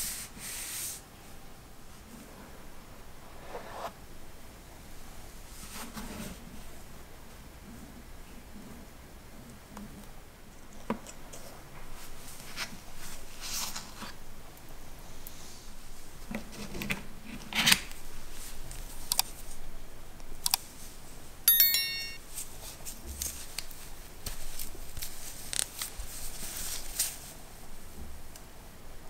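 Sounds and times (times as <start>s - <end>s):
electronic chime: 21.5s - 22.2s.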